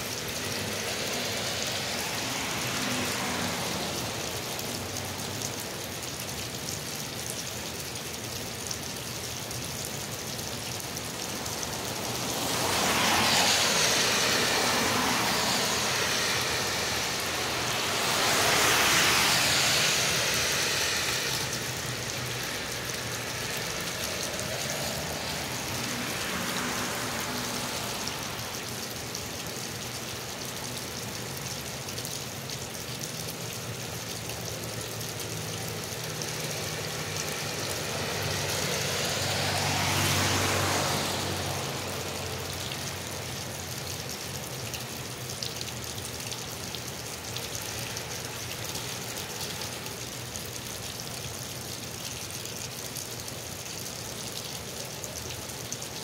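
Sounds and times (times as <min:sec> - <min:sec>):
car passing on wet road: 0:00.0 - 0:56.0
steady rain: 0:00.0 - 0:56.0
water gushing from drain pipe: 0:00.0 - 0:56.0.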